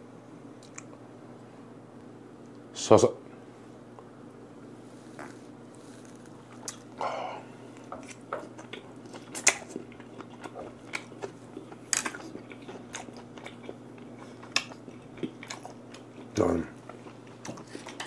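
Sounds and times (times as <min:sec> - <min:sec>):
wet smacking chewing: 0:06.0 - 0:06.9, 0:07.8 - 0:18.0.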